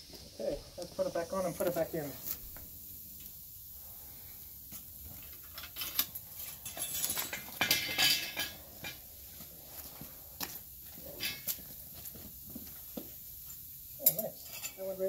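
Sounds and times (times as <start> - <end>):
metal tools clinking on pavement: 4.7 - 9.1, 9.9 - 13.1, 14.0 - 15.0.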